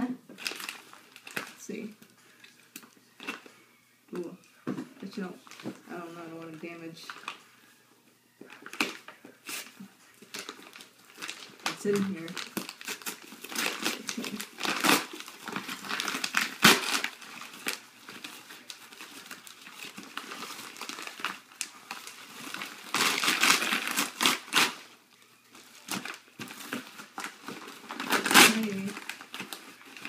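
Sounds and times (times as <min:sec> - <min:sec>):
paper mailer tearing and crinkling: 0:08.6 - 0:30.0.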